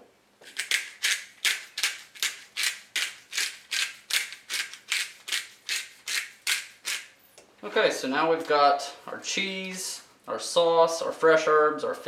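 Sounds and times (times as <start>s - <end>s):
seasoning mill grinding: 0.5s - 7.1s.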